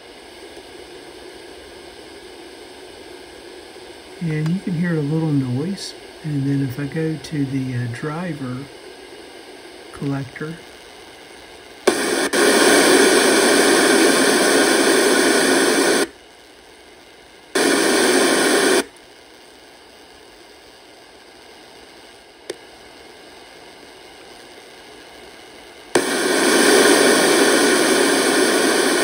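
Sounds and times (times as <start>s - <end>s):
loud hiss through speaker: 0.0s - 29.0s
faint click: 4.4s - 4.6s, 22.4s - 22.6s.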